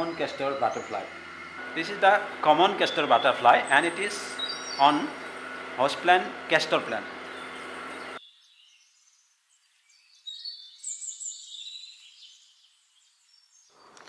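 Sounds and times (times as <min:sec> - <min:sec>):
low background hum: 0:00.0 - 0:08.2
birds chirping and whistling: 0:00.0 - 0:14.0.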